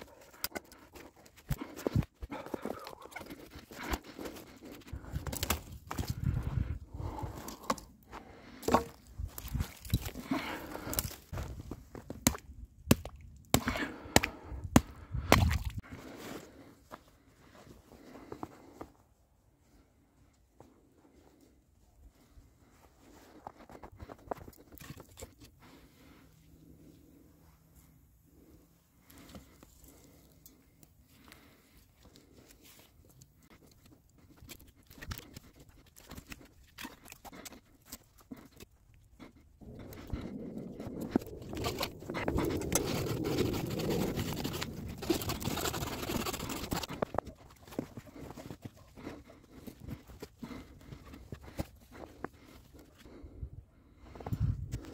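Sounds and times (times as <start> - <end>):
faint rustling of gloved hands: 16.0 - 53.3.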